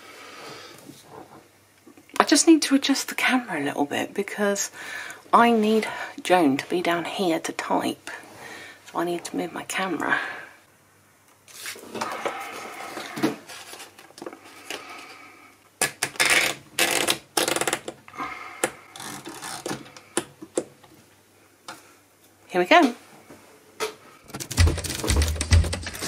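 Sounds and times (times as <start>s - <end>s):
paper rustling and sliding: 11.5s - 14.1s.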